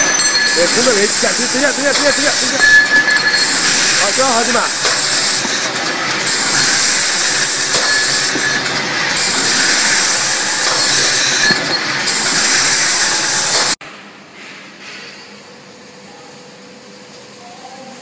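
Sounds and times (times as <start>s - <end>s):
pipe cutting machine hissing: 0.0s - 13.8s.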